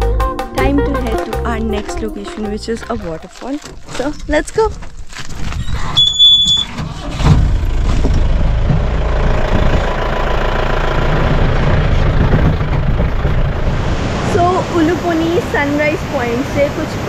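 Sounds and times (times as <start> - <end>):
jeep engine starting and running: 6.0 - 17.0.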